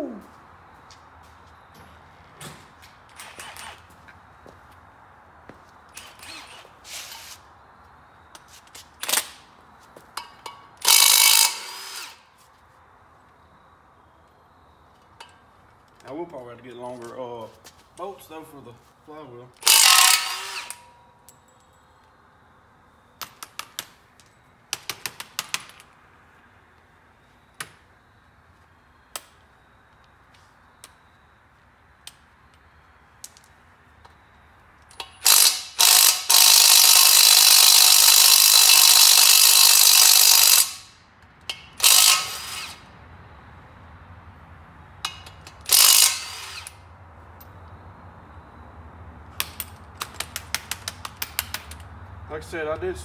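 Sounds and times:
powered ratchet running: 10.8 - 12.2, 19.6 - 20.8, 35.2 - 40.9, 41.8 - 42.8, 45.7 - 46.8
ratchet clicking: 10.8 - 12.2, 35.0 - 41.0.

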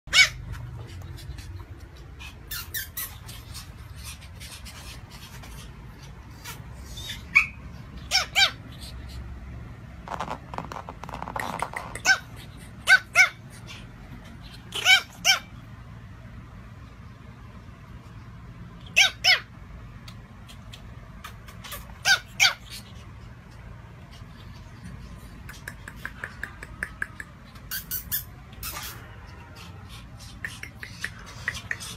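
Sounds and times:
puppy yapping: 0.1 - 8.9, 11.2 - 13.8, 14.4 - 15.6, 18.8 - 19.5, 20.7 - 23.0.

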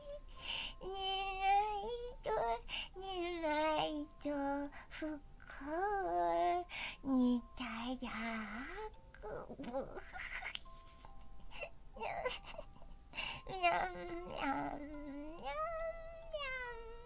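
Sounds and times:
high-pitched voice singing meows: 15.4 - 17.0.

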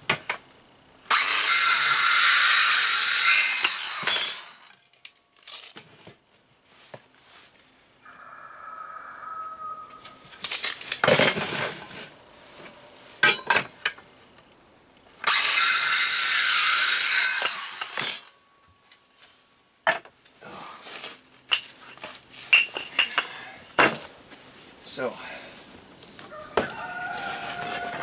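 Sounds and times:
circular saw cutting wood: 1.1 - 4.7, 15.2 - 18.3.

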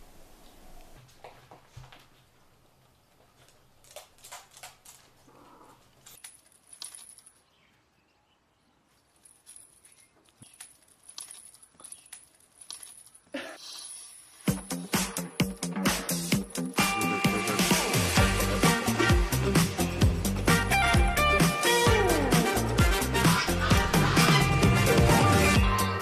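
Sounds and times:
faint clicks and rustles: 0.7 - 7.7, 8.8 - 14.5.

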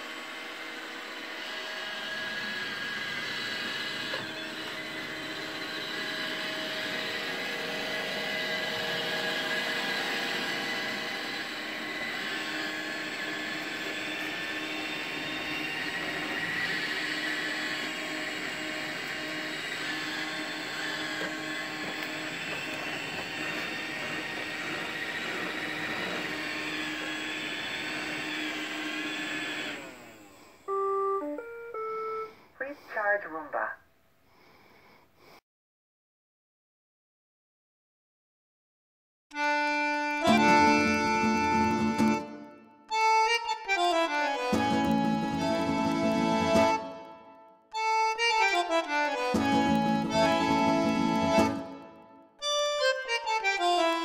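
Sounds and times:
robot vacuum whirring: 0.0 - 31.0, 47.8 - 51.7
robot vacuum winding down: 0.0 - 32.3.

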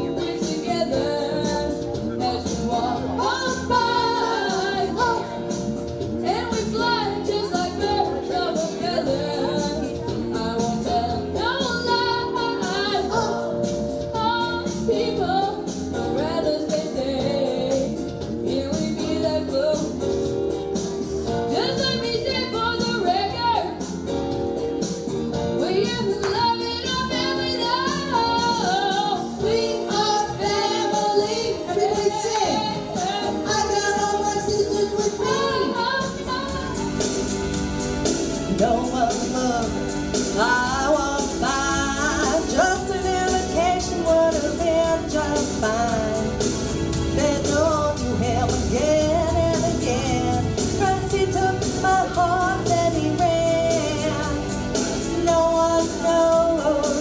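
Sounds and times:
instrumental backing: 0.0 - 57.0
person singing: 6.2 - 20.2, 38.4 - 57.0.

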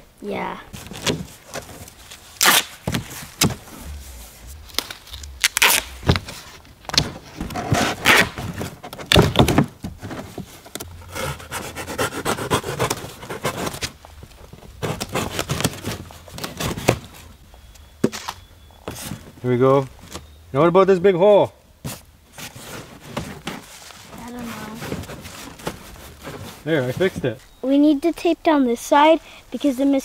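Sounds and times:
cardboard being handled: 0.7 - 17.3, 21.9 - 27.4
duct tape ripping off roll: 2.1 - 7.0, 7.6 - 9.4.

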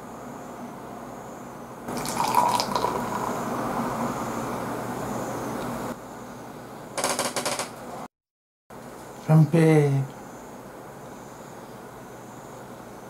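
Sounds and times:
beer pouring into a glass: 1.9 - 3.5.

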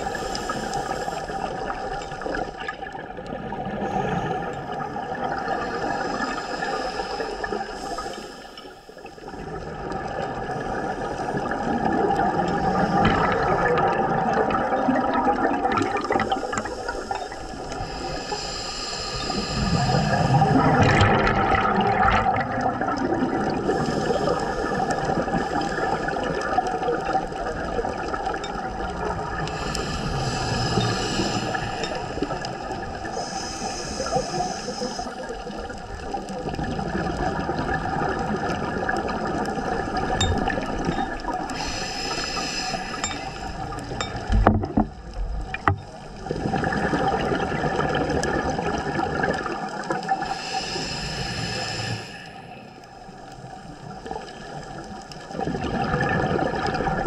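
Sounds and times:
regulator hiss on inhale: 0.0 - 2.4, 3.8 - 9.3, 12.5 - 13.7, 16.3 - 20.6, 23.6 - 26.2, 29.3 - 35.8, 40.3 - 44.3, 50.1 - 53.5
bubbling exhalations: 11.4 - 17.3, 19.6 - 28.4.

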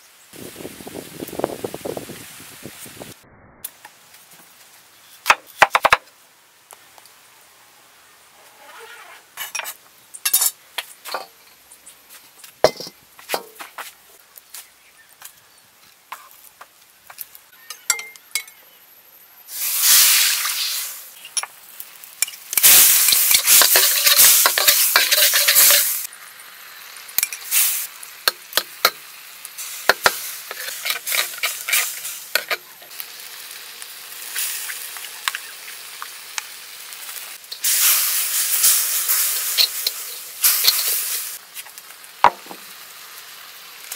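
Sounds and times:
sizzling frying in a wok: 0.0 - 3.2, 9.3 - 43.9
metal spoon scraping a wok: 9.4 - 10.6, 22.2 - 26.1, 29.9 - 32.9, 38.6 - 41.4.

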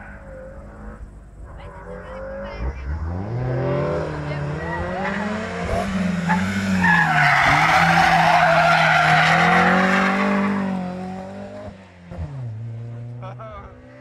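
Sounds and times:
rally car engine at high revs: 0.0 - 14.0
loud tyre squeal: 4.5 - 5.3, 6.2 - 11.0.

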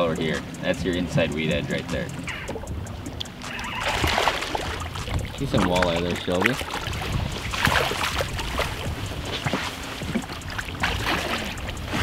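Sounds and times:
low water rush: 0.0 - 12.0
water splashing against boat: 0.0 - 12.0
fish thrashing at surface: 3.4 - 12.0.

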